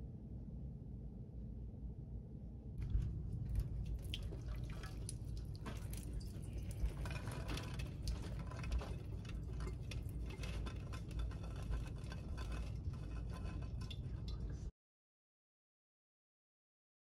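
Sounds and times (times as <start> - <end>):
pot scraping: 2.8 - 14.7
water draining: 2.8 - 14.7.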